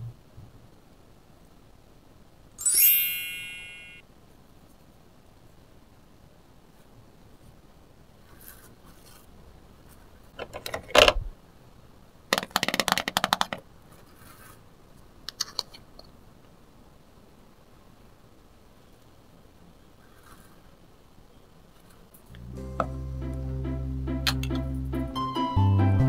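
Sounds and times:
plastic toy kitchenware clicking: 0:12.4 - 0:13.6.

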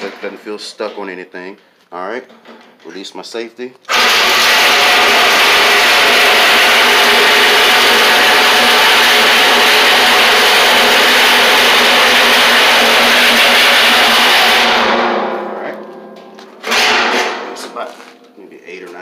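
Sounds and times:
reciprocating saw cutting metal: 0:03.9 - 0:15.3.

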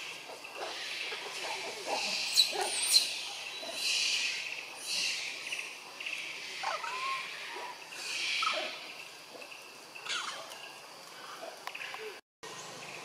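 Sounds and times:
insect drone: 0:00.0 - 0:13.0
chirping and gliding calls: 0:02.4 - 0:11.4.

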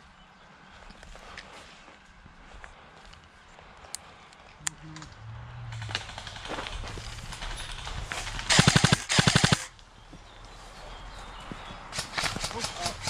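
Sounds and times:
airsoft gun full-auto bursts: 0:05.8 - 0:09.7, 0:11.9 - 0:13.0.

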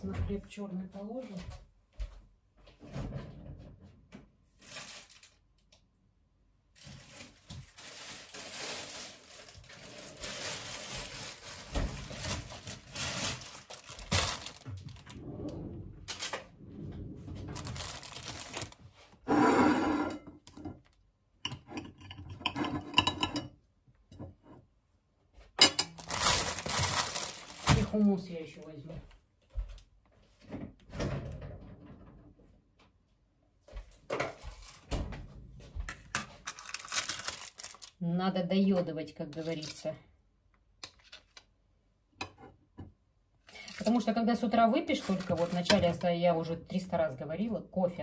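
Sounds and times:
rustling and crinkling: 0:04.5 - 0:05.8, 0:06.7 - 0:19.3, 0:25.9 - 0:30.8, 0:33.6 - 0:38.0, 0:43.4 - 0:46.1.

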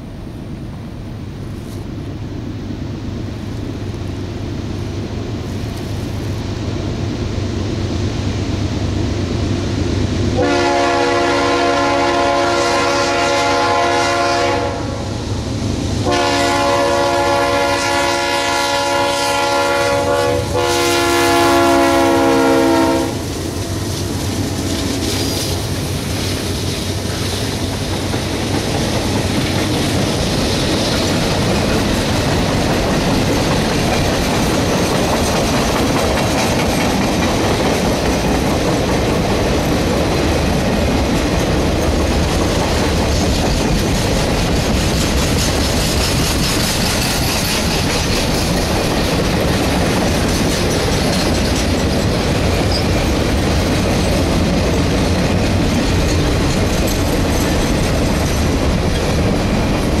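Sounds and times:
train rumble: 0:00.0 - 1:00.0
locomotive air horn: 0:10.3 - 0:15.1, 0:16.0 - 0:23.3
train wheels clacking on rails: 0:15.2 - 1:00.0.

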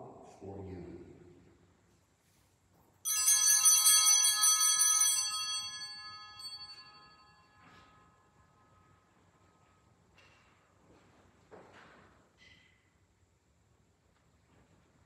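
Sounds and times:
small hand bells jangling: 0:03.1 - 0:07.6.

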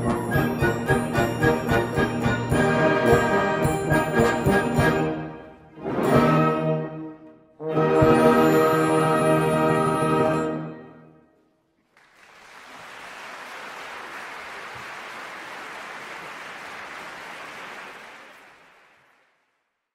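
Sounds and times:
audience applause: 0:11.9 - 0:19.4.

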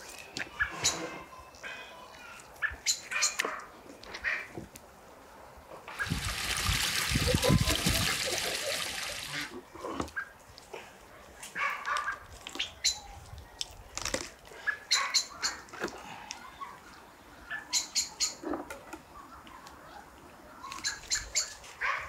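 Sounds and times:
bird chirps and calls: 0:17.5 - 0:18.4, 0:20.6 - 0:21.6.

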